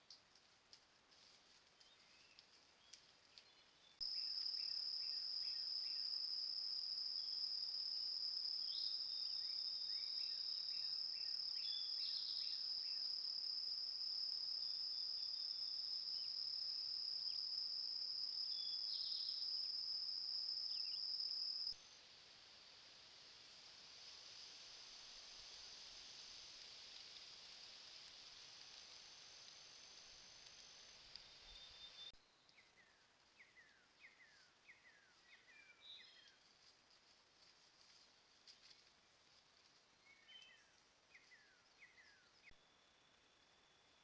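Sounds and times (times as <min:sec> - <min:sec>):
bird chirping: 0:08.6 - 0:13.0, 0:31.3 - 0:36.4.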